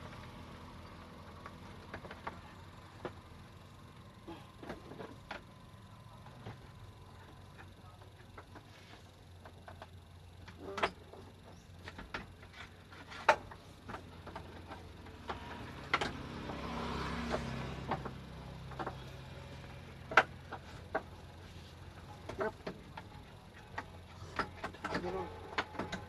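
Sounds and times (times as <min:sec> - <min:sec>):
low steady hum: 0:00.0 - 0:26.0
clicks and knocks of handling parts: 0:06.2 - 0:26.0.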